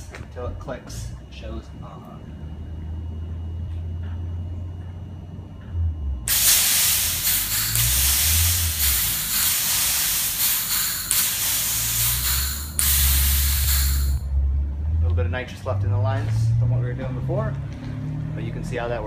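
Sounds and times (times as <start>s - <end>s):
loud steady gas hiss: 6.3s - 14.2s.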